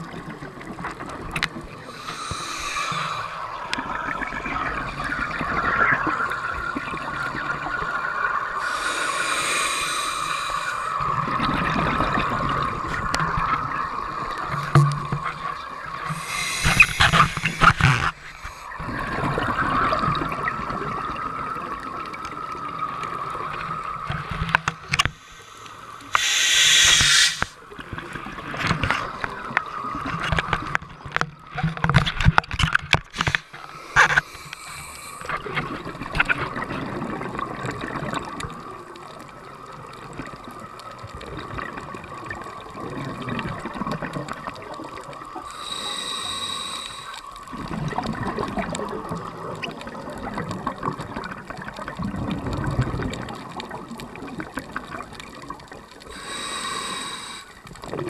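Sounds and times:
underwater bubbles and hiss: 0:00.0 - 0:58.0
diver breathing through regulator: 0:01.8 - 0:03.6, 0:08.6 - 0:11.0, 0:16.1 - 0:18.8, 0:25.1 - 0:27.6, 0:33.2 - 0:35.4, 0:45.4 - 0:47.4, 0:56.1 - 0:57.6.

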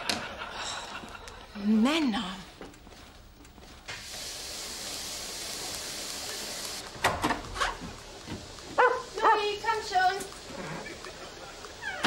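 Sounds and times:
steady hiss: 0:02.7 - 0:12.0.

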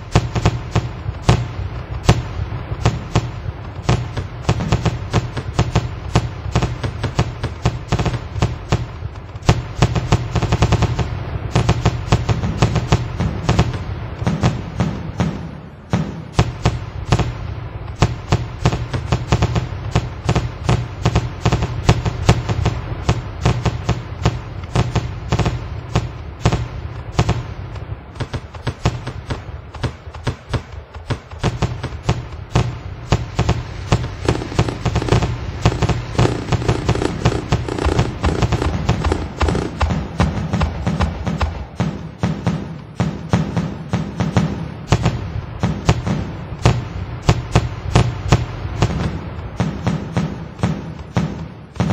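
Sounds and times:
low rumble: 0:00.0 - 0:49.7
fireworks crackling and popping: 0:00.0 - 0:51.9.

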